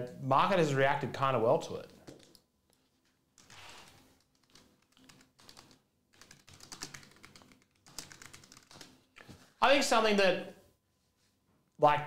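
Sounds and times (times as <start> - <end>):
faint keyboard typing: 1.8 - 9.4.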